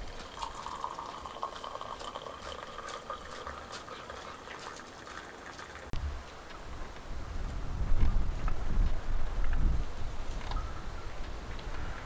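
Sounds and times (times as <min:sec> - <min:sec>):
liquid pouring into container: 0:00.0 - 0:05.9
small splashes: 0:00.0 - 0:05.9.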